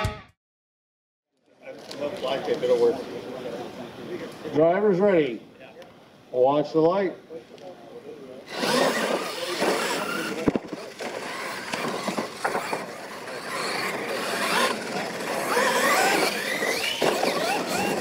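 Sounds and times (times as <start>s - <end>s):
electric motors whining: 8.5s - 18.0s.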